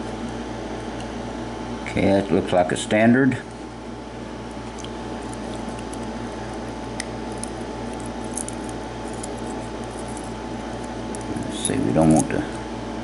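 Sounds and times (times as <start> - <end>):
steady low hum: 0.0 - 13.0
tweezers ticking and scraping metal: 4.7 - 12.4.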